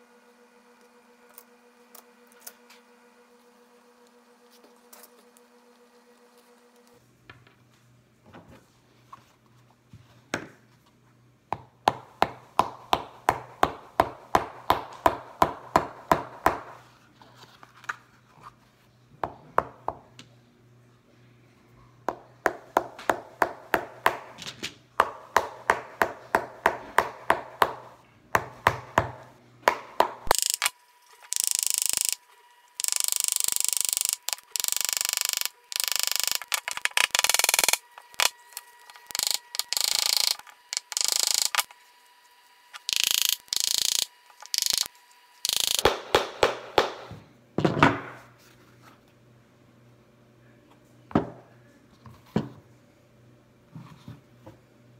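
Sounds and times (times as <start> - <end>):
small hammer tapping: 39.1 - 41.7.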